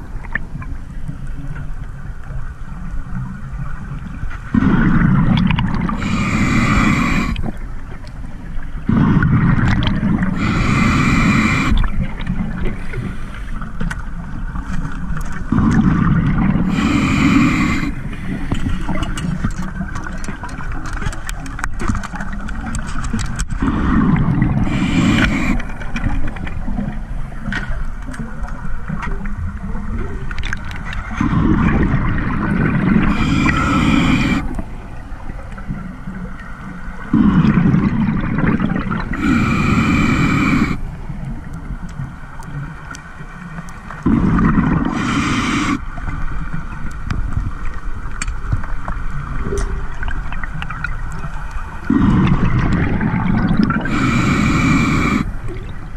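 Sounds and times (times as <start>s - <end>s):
regulator breaths bubbling: 4.5s - 7.7s, 8.8s - 13.8s, 15.5s - 21.4s, 23.5s - 26.8s, 31.1s - 34.8s, 37.0s - 41.0s, 44.0s - 45.9s, 50.4s - 55.9s
faint clicking: 11.0s - 15.5s, 18.5s - 23.6s, 25.1s - 29.3s, 29.9s - 31.0s, 40.7s - 44.1s, 45.7s - 55.9s.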